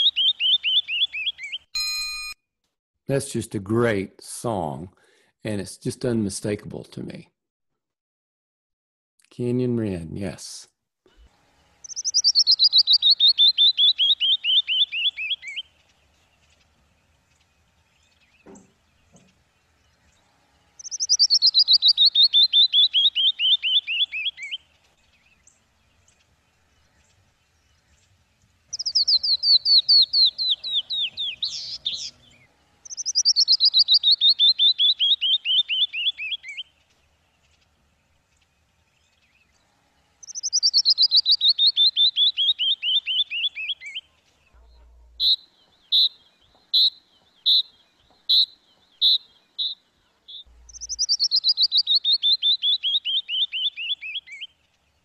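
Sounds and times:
wren song descending notes: 11.8 - 20.2, 20.8 - 37.6, 40.2 - 54.5
short sharp bird notes: 28.7 - 36.8, 40.2 - 54.5.

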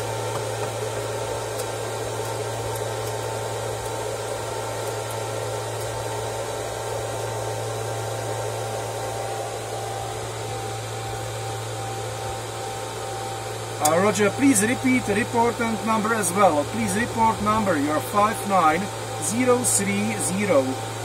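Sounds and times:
cooling fans whirring: 0.0 - 21.0
low hum: 0.0 - 21.0.

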